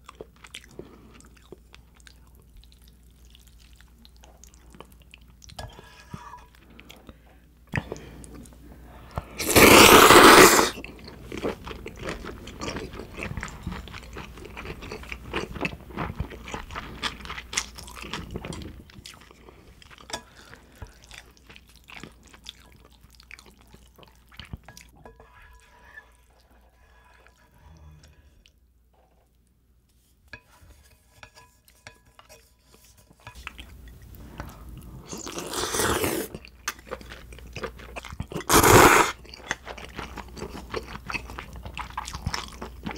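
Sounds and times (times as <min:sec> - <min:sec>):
close-up chewing: 0:00.0 - 0:09.3, 0:10.7 - 0:29.5, 0:32.7 - 0:42.9
person slurping noodles: 0:09.4 - 0:10.8, 0:35.0 - 0:36.4, 0:38.4 - 0:39.2.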